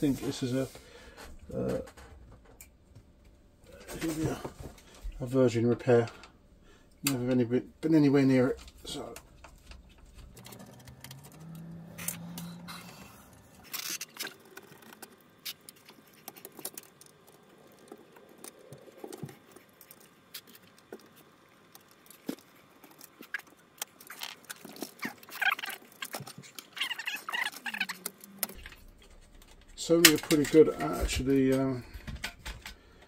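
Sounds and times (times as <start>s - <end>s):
plastic and metal clicks and rattles: 13.6s - 33.0s.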